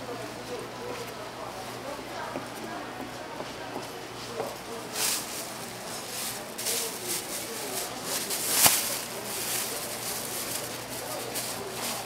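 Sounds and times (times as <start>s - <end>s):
plastic bag crinkling: 4.8s - 12.0s.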